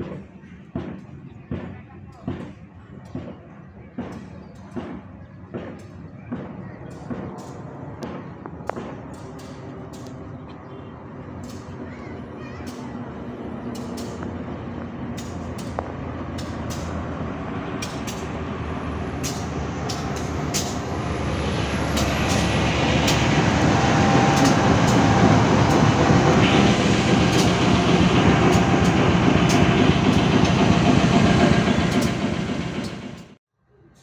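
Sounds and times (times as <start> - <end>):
diesel locomotive engine passing: 6.3 - 33.4.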